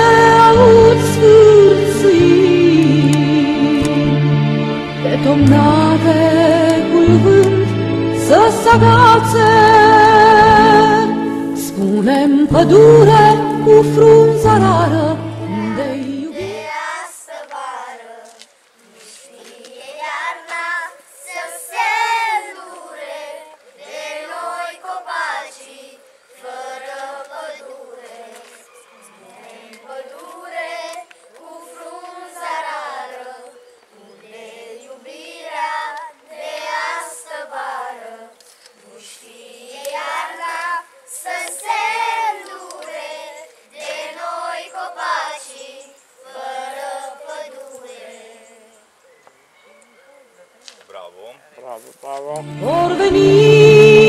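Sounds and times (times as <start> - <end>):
backing music track: 0.0 - 16.6, 52.1 - 54.0
children singing together: 12.5 - 18.3, 19.5 - 28.5, 29.2 - 38.4, 39.1 - 48.6, 52.4 - 54.0.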